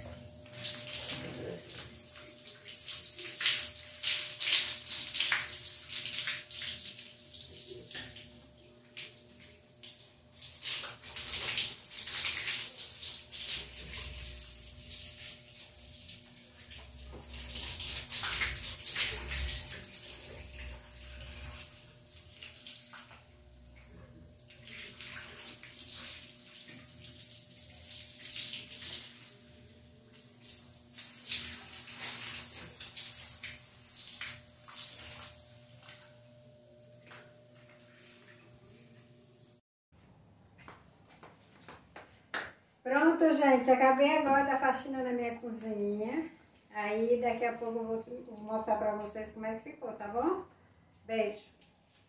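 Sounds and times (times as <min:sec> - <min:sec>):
hose water spraying on glass: 0:09.0 - 0:23.2, 0:24.5 - 0:36.0.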